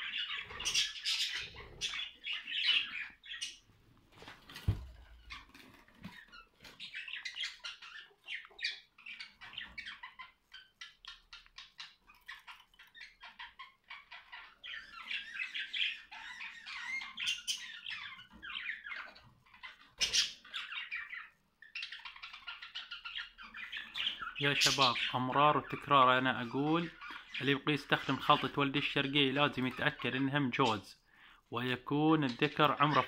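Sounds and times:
budgerigars chattering: 0.0s - 3.7s, 5.2s - 33.0s.

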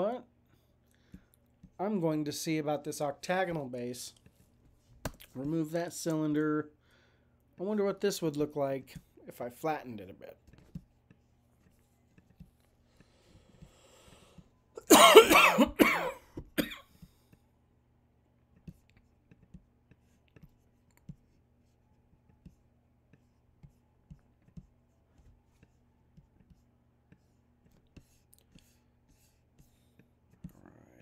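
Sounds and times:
man coughing: 14.8s - 16.9s.

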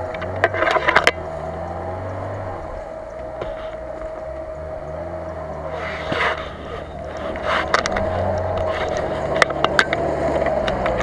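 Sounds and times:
sharp clicks and cracks: 0.0s - 1.2s, 5.2s - 11.0s
car engine at low revs: 0.0s - 11.0s.

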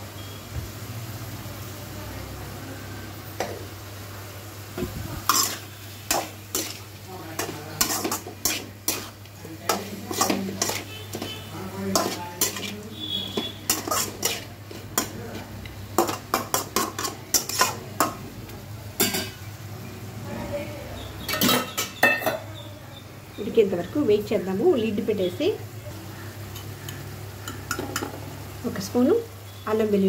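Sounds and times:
chicken sizzling: 0.0s - 30.0s
spatula scraping a metal pan: 5.3s - 15.4s, 16.0s - 17.9s.

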